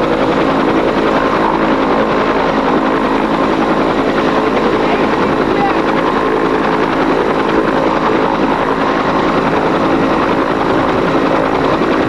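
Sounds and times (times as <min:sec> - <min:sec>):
helicopter turbine and rotor: 0:00.0 - 0:12.0.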